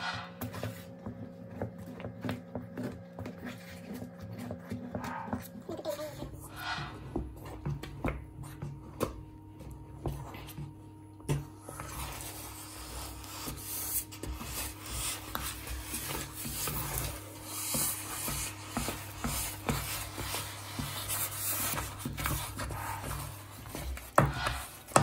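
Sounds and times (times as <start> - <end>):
wooden spoon scraping a pot: 11.3 - 25.0.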